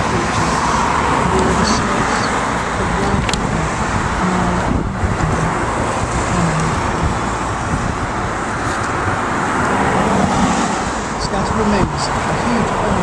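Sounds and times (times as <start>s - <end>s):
road traffic rush: 0.0s - 13.0s.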